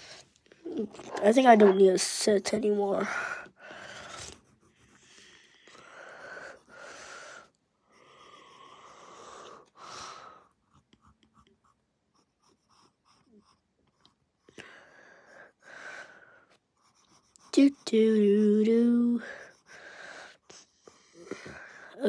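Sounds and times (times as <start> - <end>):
soft breathing: 3.0 - 10.6, 14.4 - 16.6, 19.1 - 22.0.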